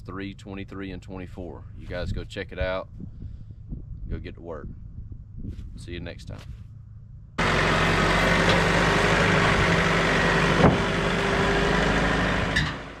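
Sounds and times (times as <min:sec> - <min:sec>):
vehicle engine running: 0:06.7 - 0:13.0.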